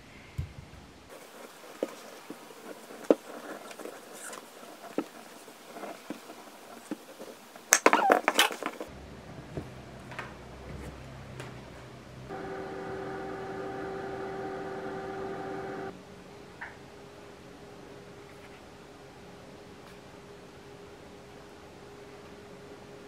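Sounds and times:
countertop oven humming: 12.3s - 15.9s.

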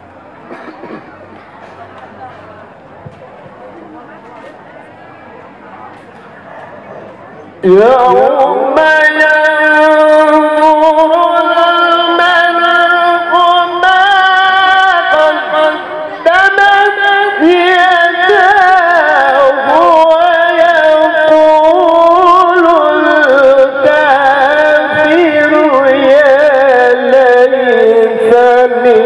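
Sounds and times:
man reciting melodically: 7.6s - 29.0s.

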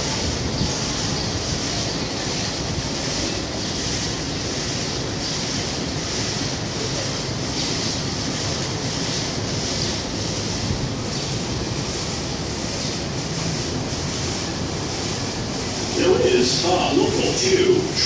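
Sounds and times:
wind on microphone: 0.0s - 3.2s
distant subway train rumble: 0.0s - 18.0s.

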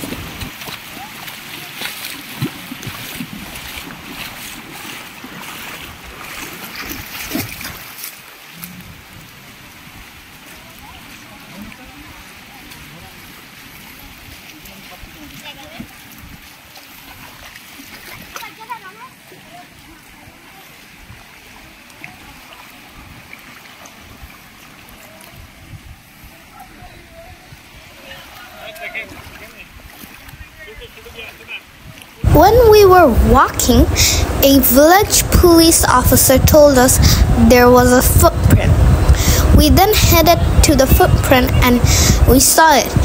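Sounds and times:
wind on microphone: 0.0s - 1.1s, 25.2s - 28.1s, 31.8s - 43.0s
stream running over rocks: 0.0s - 43.0s.

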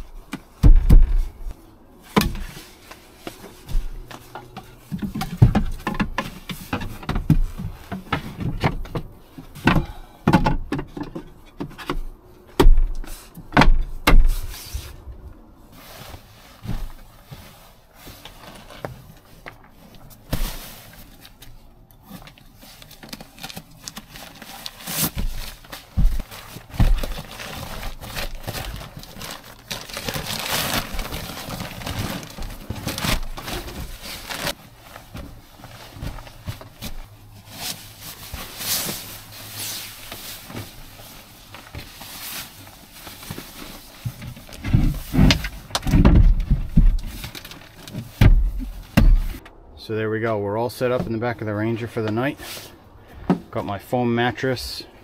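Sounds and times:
sleeping bag rustling: 0.0s - 10.0s, 12.1s - 49.4s
wooden boards knocking and thumping: 0.6s - 1.2s, 4.4s - 14.5s, 44.6s - 47.1s, 48.2s - 49.4s.

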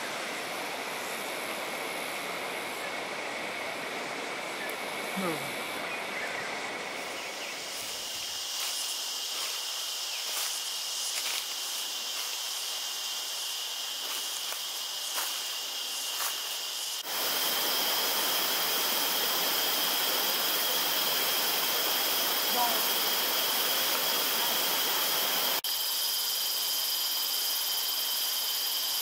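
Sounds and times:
flowing stream: 0.0s - 25.6s
insects droning: 0.0s - 29.0s
footsteps on dry leaves: 7.6s - 17.1s.

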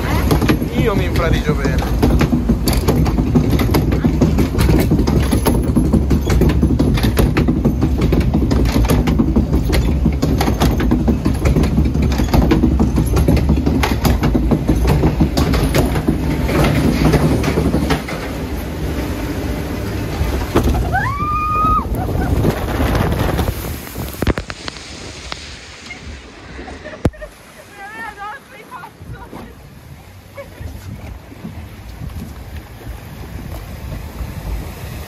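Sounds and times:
boat splashing into water: 0.0s - 35.0s
lift conveyor rumbling and clattering: 0.0s - 35.0s
rider crying out: 20.7s - 22.3s.

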